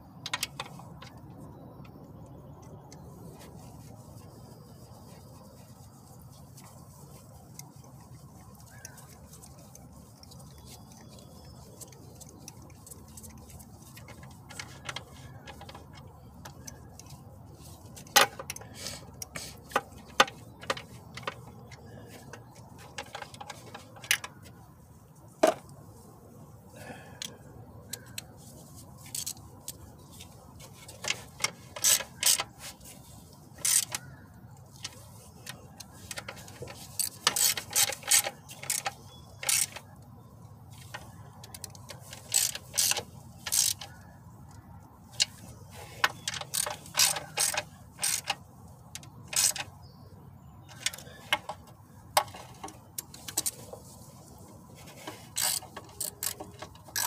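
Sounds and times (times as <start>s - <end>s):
hand tools clinking on metal: 46.0s - 48.4s.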